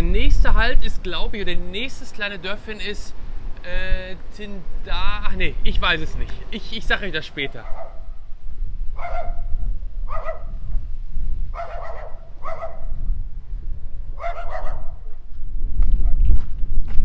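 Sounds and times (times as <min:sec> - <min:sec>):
steady low rumble: 0:00.0 - 0:17.0
dog barking: 0:07.6 - 0:08.1, 0:09.0 - 0:09.5, 0:10.1 - 0:10.6, 0:11.5 - 0:13.0, 0:14.2 - 0:15.1.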